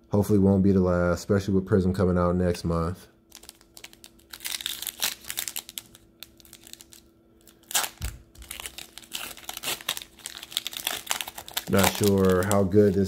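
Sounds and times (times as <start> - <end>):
plastic wrapper crinkling: 3.3 - 13.0.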